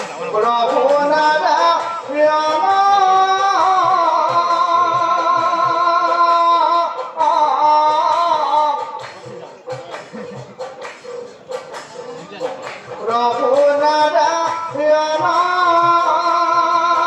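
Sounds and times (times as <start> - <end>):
faint drum beats: 0.0 - 17.0
man singing slow melody: 0.1 - 9.0, 13.0 - 17.0.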